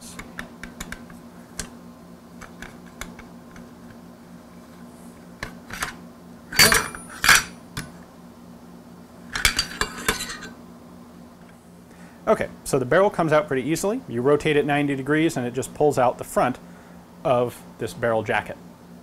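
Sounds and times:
ringing metal clinks: 6.6s - 7.5s.

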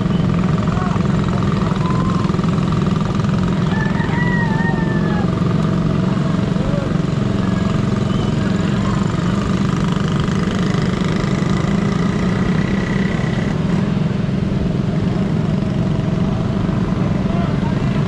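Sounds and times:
motorcycle engines running: 0.0s - 18.0s.

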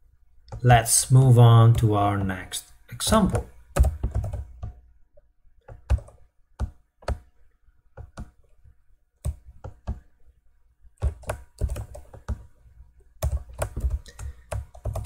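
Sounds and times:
keyboard keystrokes: 3.3s - 4.8s, 11.0s - 12.5s, 13.2s - 15.0s.

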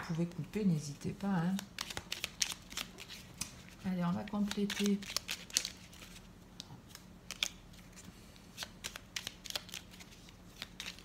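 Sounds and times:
cards being shuffled: 1.4s - 11.0s.

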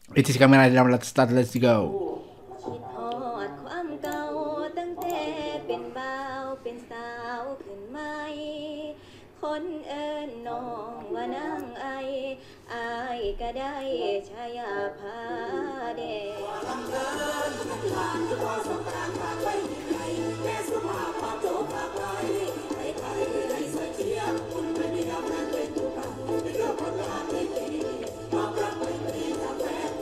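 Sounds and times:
girl singing into microphone: 2.6s - 16.6s.

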